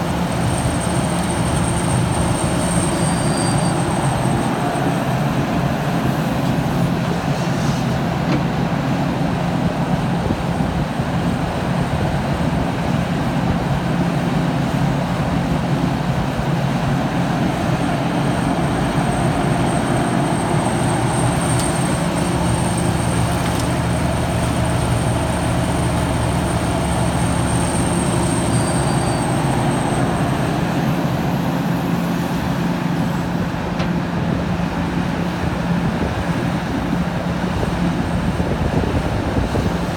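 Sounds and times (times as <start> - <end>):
thin high whine: 0.0 - 5.7, 17.5 - 32.1
excavator diesel engine running: 0.0 - 39.9.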